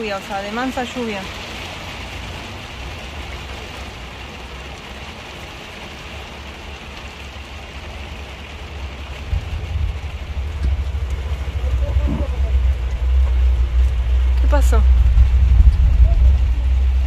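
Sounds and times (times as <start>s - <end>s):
heavy rain on vehicle: 0.0s - 17.0s
low rumble: 8.0s - 17.0s.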